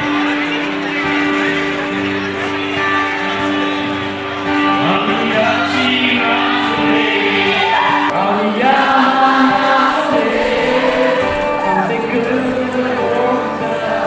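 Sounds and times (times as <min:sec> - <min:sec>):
acoustic guitar: 0:00.0 - 0:14.0
man singing through a pa: 0:04.8 - 0:14.0.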